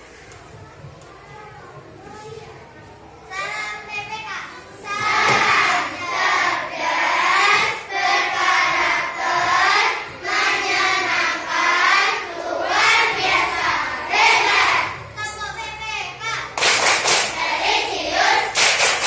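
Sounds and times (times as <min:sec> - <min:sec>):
children singing in unison: 0:04.8 - 0:15.2, 0:17.0 - 0:19.0.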